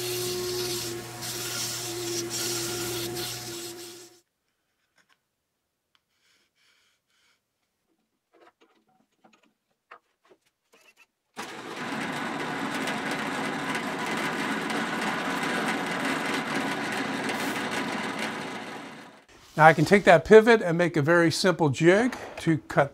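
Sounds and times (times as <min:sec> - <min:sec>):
drill press drilling wood: 0:00.0 - 0:04.1, 0:11.4 - 0:19.3.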